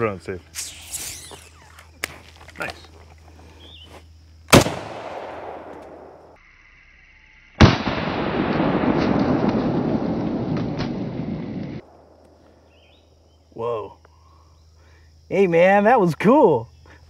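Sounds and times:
rifle shots: 4.5 - 6.3.

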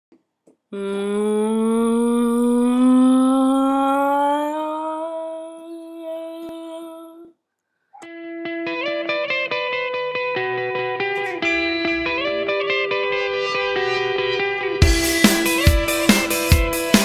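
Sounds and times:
electric guitar music: 8.0 - 17.0
rising humming tone: 11.3 - 13.2.

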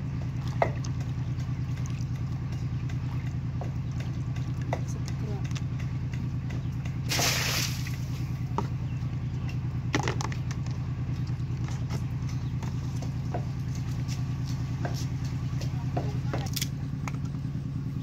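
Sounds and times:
small engine running: 0.0 - 18.0.

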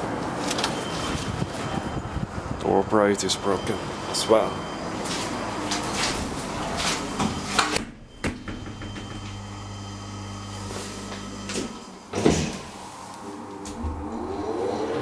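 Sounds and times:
low hum of lift: 6.1 - 12.6.

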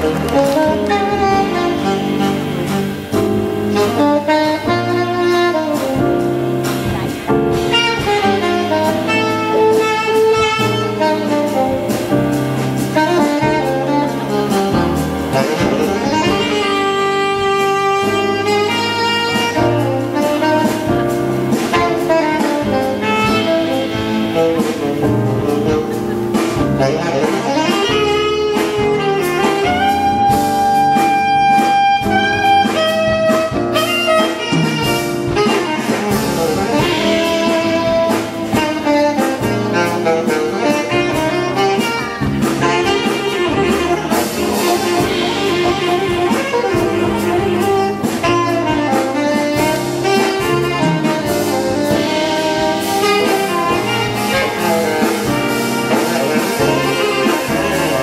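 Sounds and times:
jazz big band playing: 0.0 - 58.0.

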